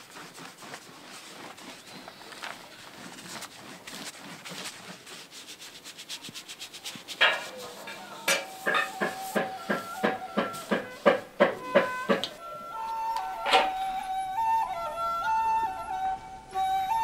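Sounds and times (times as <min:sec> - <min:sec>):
brush scrubbing paper: 0:00.0 - 0:12.4
flute long notes: 0:07.8 - 0:17.0
rhythmic knocks: 0:08.2 - 0:15.5.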